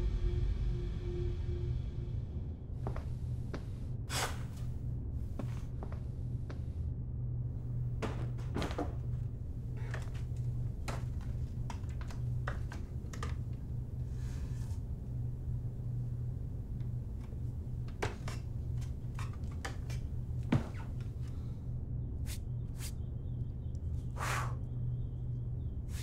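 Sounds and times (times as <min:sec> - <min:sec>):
steady low hum: 0:00.0 - 0:26.0
bumps against bookshelves: 0:08.0 - 0:09.2
footsteps on wooden ladder: 0:08.0 - 0:09.2, 0:09.8 - 0:13.6.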